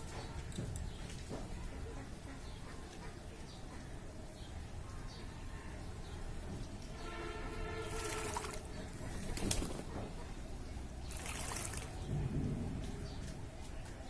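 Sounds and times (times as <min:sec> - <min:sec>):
pigeon splashing water: 0:07.6 - 0:10.0, 0:11.0 - 0:12.1.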